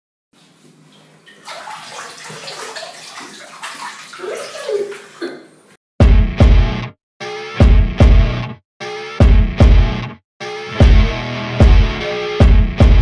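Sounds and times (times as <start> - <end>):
water splashing and sloshing: 0.4 - 5.8
loud music with heavy bass: 6.0 - 13.0.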